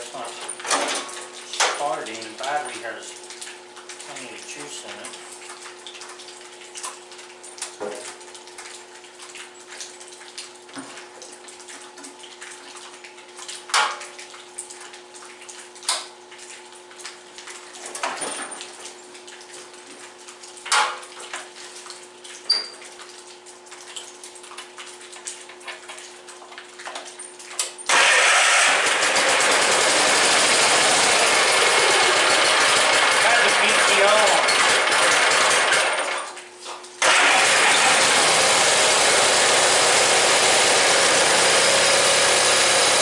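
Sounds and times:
tractor engine starting and running: 0:27.9 - 0:36.3, 0:37.0 - 0:43.0.

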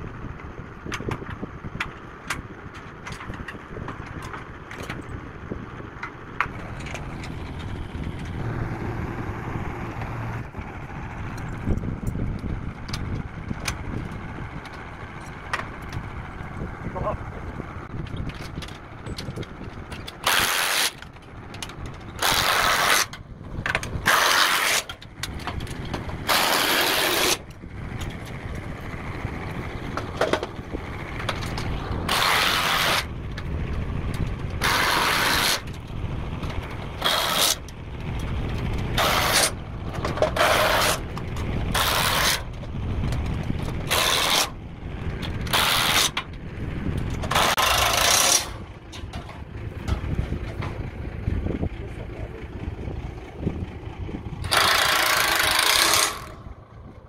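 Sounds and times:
impact driver bursts: 0:54.5 - 0:56.3.

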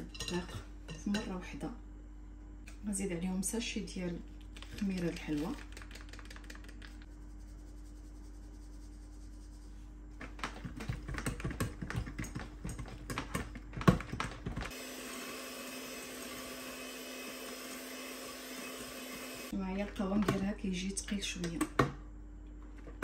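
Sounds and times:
irregular tapping and clattering: 0:10.2 - 0:14.7
electric hand mixer running: 0:14.7 - 0:19.5.

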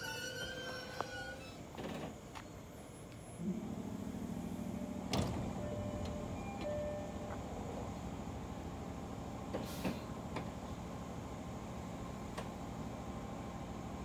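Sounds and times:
train doors opening clunk: 0:00.0 - 0:02.5, 0:04.5 - 0:08.0, 0:09.4 - 0:10.7
train equipment humming: 0:00.0 - 0:14.0
hiss of air: 0:09.6 - 0:10.2.

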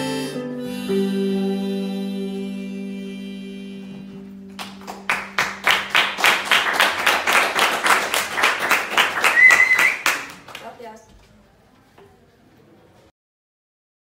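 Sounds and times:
people clapping: 0:04.6 - 0:11.1
short whistle: 0:09.2 - 0:10.3.

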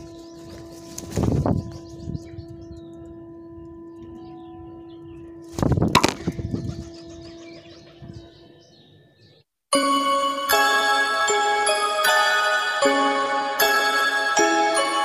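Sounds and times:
small birds chirping: 0:00.0 - 0:09.5
bird wings flapping: 0:00.5 - 0:01.6, 0:05.5 - 0:06.7.

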